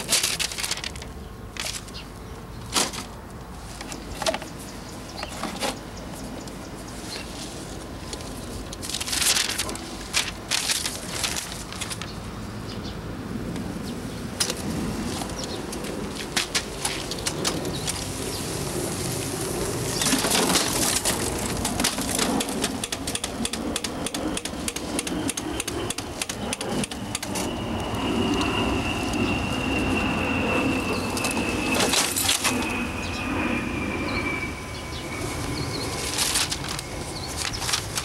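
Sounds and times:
copier clattering on gravel: 0:00.0 - 0:02.1, 0:02.7 - 0:04.5, 0:08.1 - 0:12.2, 0:14.4 - 0:18.2, 0:19.9 - 0:23.4, 0:36.0 - 0:38.0
thin high whine: 0:14.7 - 0:38.0.

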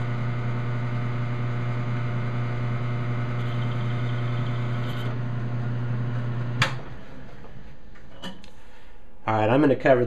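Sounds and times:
metal lathe motor hum: 0:00.0 - 0:06.7.

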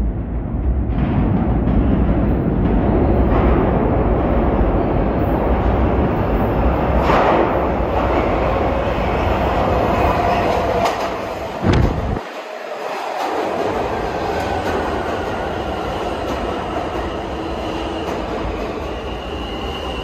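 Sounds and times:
subway train rumbling on rails: 0:00.0 - 0:20.0.

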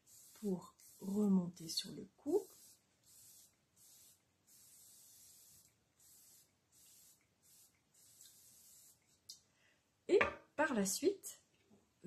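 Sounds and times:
aerosol spray hissing: 0:00.0 - 0:09.2.

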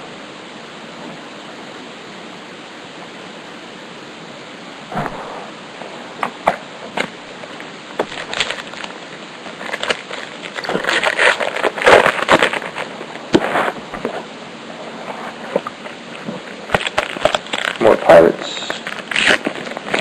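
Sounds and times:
cards flipped clicking and rustling: 0:18.7 - 0:20.0.

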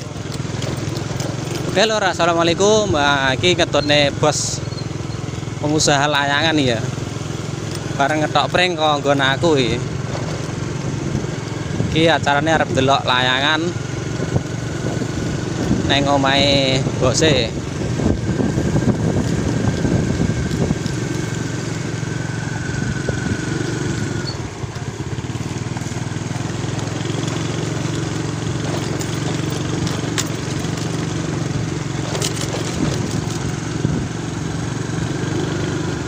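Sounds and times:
knocks and rattles: 0:00.0 - 0:02.1, 0:25.4 - 0:33.9
motorcycle engine running: 0:00.0 - 0:36.0
wind and road noise: 0:00.0 - 0:36.0.

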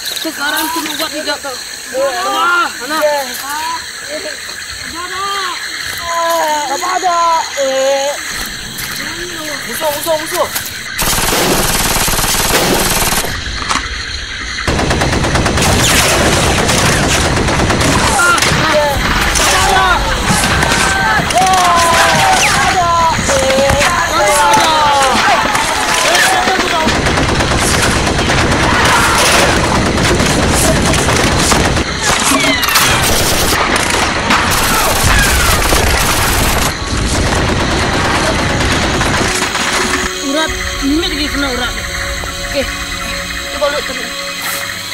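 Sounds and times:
automatic gunfire bursts: 0:09.6 - 0:13.4, 0:14.7 - 0:18.7, 0:25.8 - 0:40.0.

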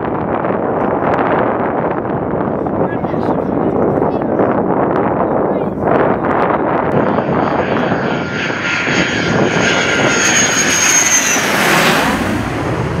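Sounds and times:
jet engine roaring: 0:05.8 - 0:13.0
high-pitched jet whine: 0:06.9 - 0:13.0.

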